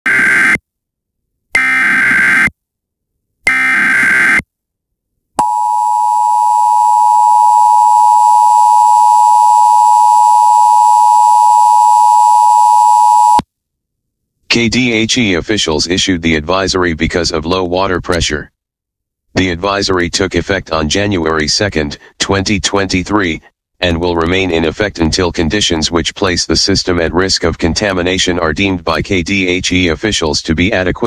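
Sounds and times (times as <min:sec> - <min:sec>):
two-tone attention signal: 0:05.4 - 0:13.4.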